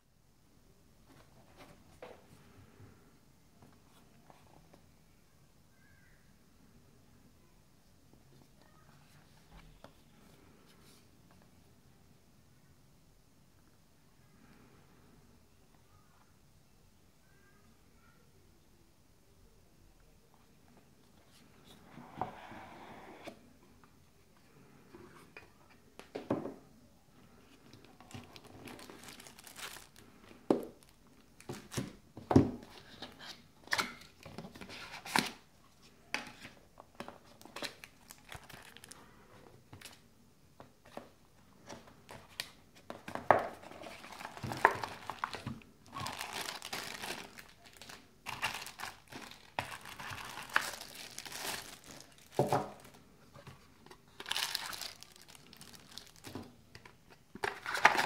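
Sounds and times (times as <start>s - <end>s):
plastic bags crinkling: 28.1s - 32.0s, 37.4s - 39.0s, 43.1s - 53.1s, 53.8s - 56.6s, 57.4s - 58.0s.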